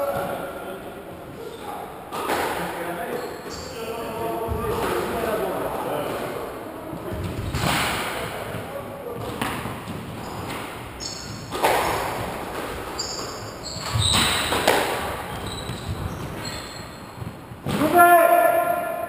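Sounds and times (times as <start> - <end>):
shoes squeaking on wooden floor: 3.0 - 17.9
squash ball hitting walls: 6.9 - 18.1.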